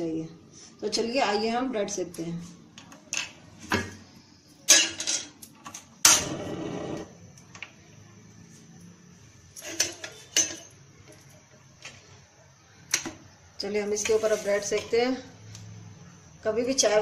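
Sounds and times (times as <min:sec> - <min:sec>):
kitchenware clattering: 0:04.7 - 0:05.4, 0:09.6 - 0:11.3
metal utensils clinking: 0:04.7 - 0:05.4, 0:09.6 - 0:11.4.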